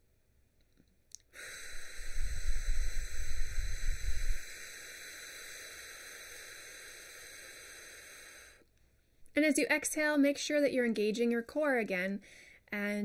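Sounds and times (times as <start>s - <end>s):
slow exhale through pursed lips: 1.2s - 8.7s
breath buffeting microphone: 1.3s - 9.3s.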